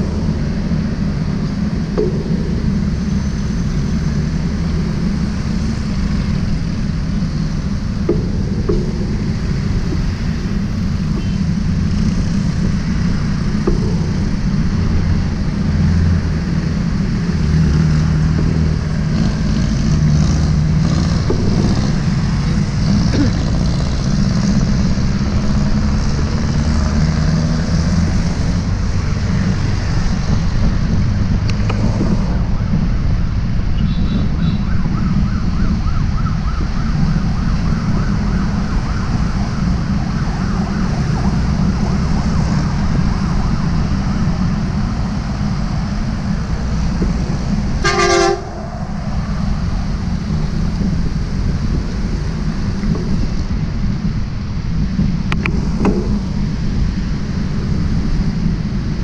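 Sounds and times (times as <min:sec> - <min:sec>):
road traffic rumble: 0:00.0 - 0:59.0
wavering siren-like tone: 0:34.1 - 0:44.3.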